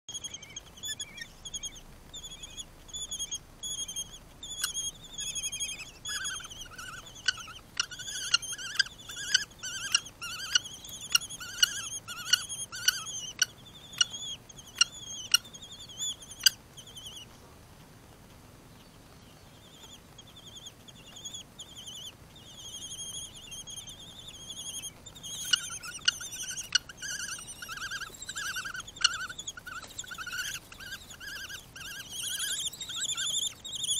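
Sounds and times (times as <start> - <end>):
bird chicks calling: 0.1 - 17.4, 18.7 - 33.9.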